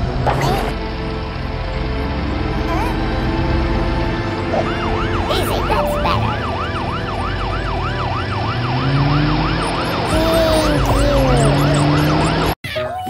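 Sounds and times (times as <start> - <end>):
siren yelping: 4.4 - 12.6.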